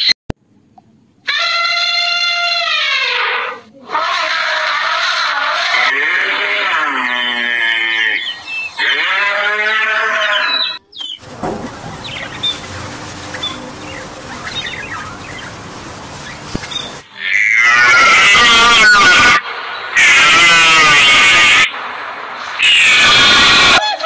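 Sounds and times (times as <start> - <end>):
cattle mooing: 4.4 - 8.2, 17.2 - 18.8
budgerigars chirping: 10.5 - 17.0.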